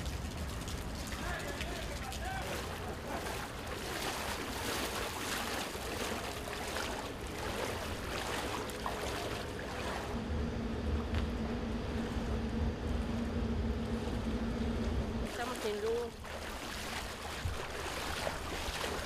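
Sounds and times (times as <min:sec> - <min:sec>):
dull rumble with low hum: 0:00.0 - 0:19.0
water splashing and sloshing: 0:00.0 - 0:19.0.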